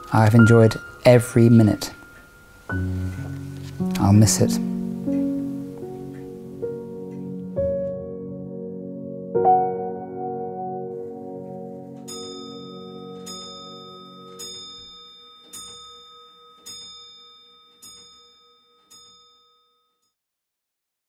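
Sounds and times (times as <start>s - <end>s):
held music chord: 0.0s - 15.0s
bell-like chime: 12.0s - 20.2s.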